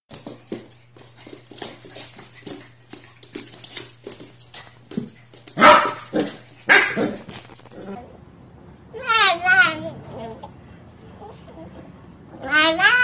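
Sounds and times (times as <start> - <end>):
puppy claws clicking on wooden floor: 0.1 - 8.0.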